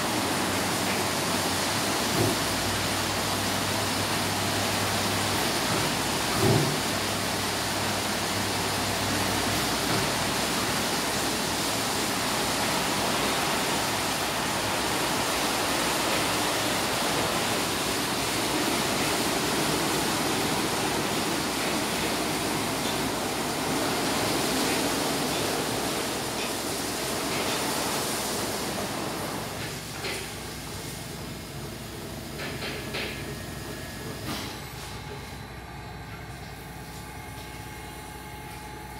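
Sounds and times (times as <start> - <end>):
car wash brushes and spray: 0.0 - 35.4.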